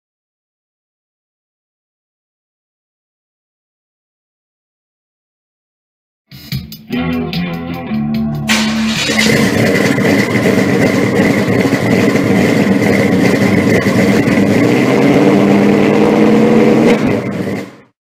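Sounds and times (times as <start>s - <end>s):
loud car engine running: 8.4s - 18.0s.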